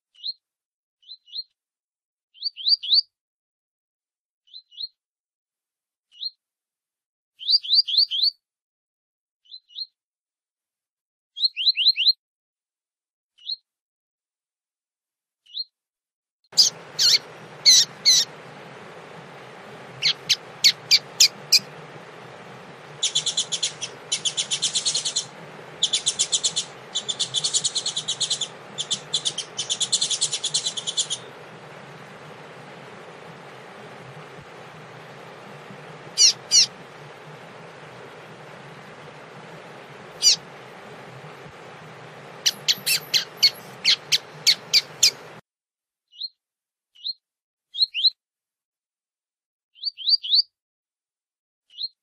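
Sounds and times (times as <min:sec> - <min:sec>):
background hiss: 0:16.6 - 0:45.4
bird chirping and trilling: 0:16.6 - 0:45.4.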